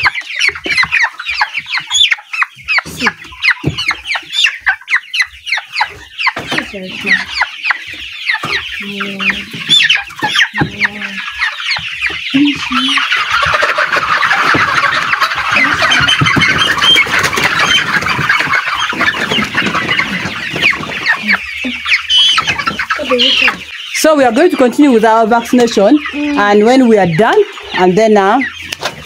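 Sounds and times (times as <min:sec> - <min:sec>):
chicks peeping and clucking: 0:00.0 - 0:29.0.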